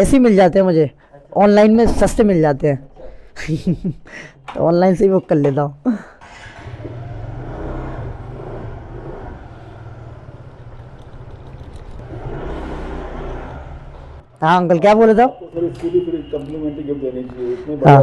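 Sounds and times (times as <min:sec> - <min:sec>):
scooter engine humming: 0:06.2 - 0:14.3.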